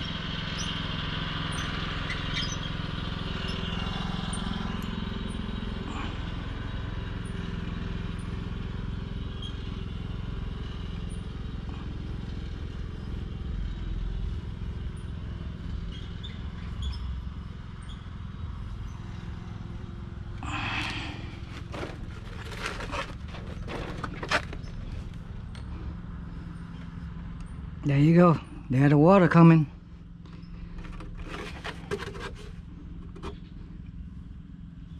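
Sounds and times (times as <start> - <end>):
steady low hum: 16.4 - 34.9
pipe cutter turning on copper pipe: 20.4 - 25.2, 30.7 - 33.4.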